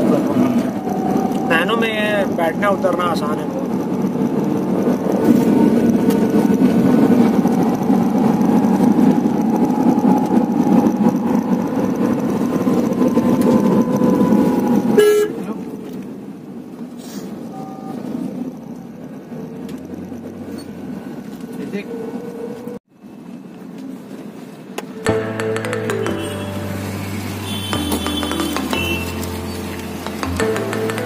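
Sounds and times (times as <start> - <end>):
road noise: 0.0 - 31.0
car horn toot: 15.0 - 15.4, 26.0 - 26.8, 27.4 - 29.5.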